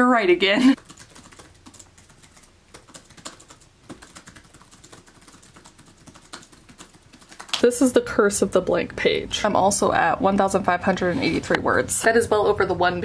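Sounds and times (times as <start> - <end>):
laptop keyboard typing: 0.8 - 7.9.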